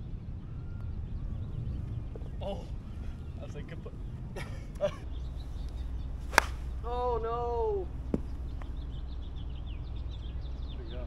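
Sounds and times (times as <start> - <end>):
golf ball struck click: 5.6 - 6.8.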